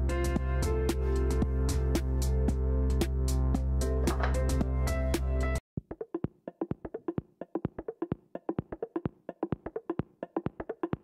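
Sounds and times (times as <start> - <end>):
quick percussive taps music: 5.8 - 11.0.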